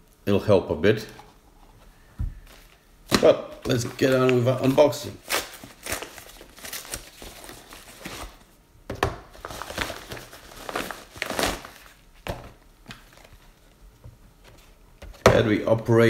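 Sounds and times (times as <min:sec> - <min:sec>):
padded envelope crinkling: 0:02.4 - 0:08.5, 0:09.3 - 0:13.8.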